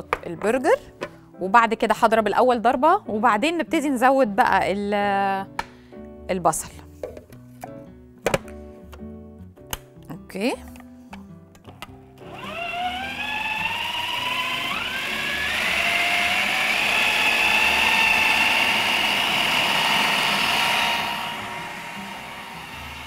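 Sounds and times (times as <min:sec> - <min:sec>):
food processor motor whine: 0:12.2 - 0:23.0.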